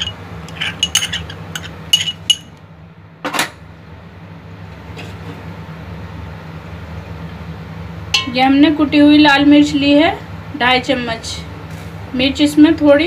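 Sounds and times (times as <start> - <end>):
metal spoon clinking on glass: 0.0 - 2.5, 8.2 - 8.4
spoon scraping: 0.0 - 2.5.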